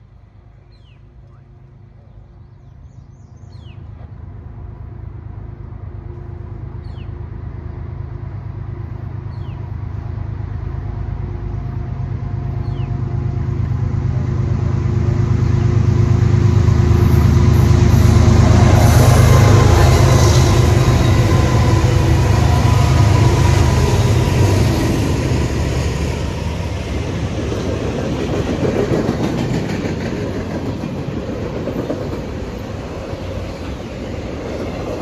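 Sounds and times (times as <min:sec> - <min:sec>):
diesel locomotive engine rumble: 0:00.0 - 0:35.0
bird chirping: 0:12.6 - 0:13.0.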